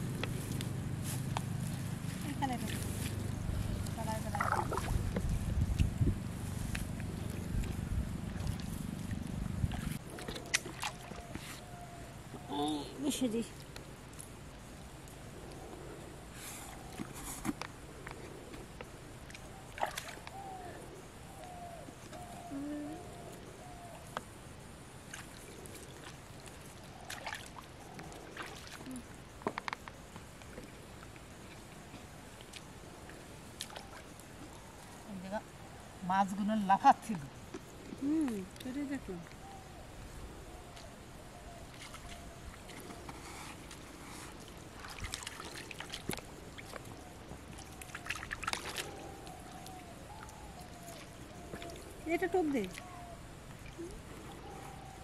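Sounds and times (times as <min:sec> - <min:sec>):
pond water splashing: 0:00.0 - 0:11.7, 0:19.0 - 0:20.5, 0:24.8 - 0:34.6, 0:41.6 - 0:54.5
trickling water: 0:01.6 - 0:06.1, 0:41.6 - 0:54.6
small splashes in water: 0:04.0 - 0:05.2, 0:09.7 - 0:11.2, 0:19.3 - 0:20.4, 0:25.1 - 0:27.7, 0:44.4 - 0:46.9, 0:47.5 - 0:52.9.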